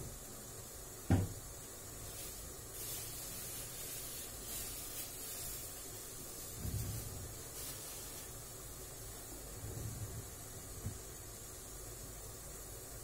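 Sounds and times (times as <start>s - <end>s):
juice boiling with faint hiss: 0.0s - 13.0s
sharp thump: 1.1s - 1.3s.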